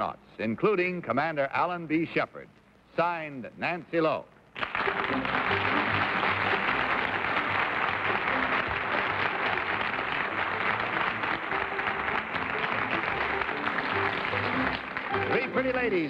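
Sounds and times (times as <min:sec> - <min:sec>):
audience applauding: 0:04.6 - 0:16.0
soft music: 0:04.7 - 0:16.0.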